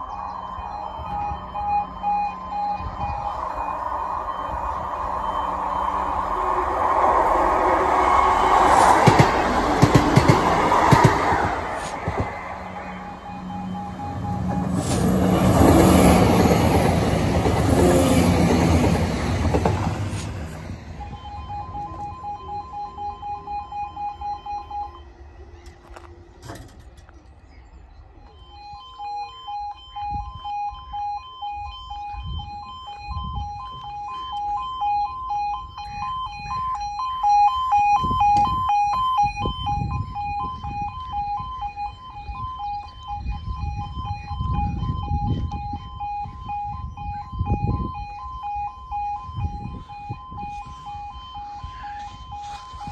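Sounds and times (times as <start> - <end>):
two-tone crossing alarm: 0.0 - 26.8, 28.0 - 52.9
diesel train passing: 0.0 - 30.4, 47.7 - 52.9.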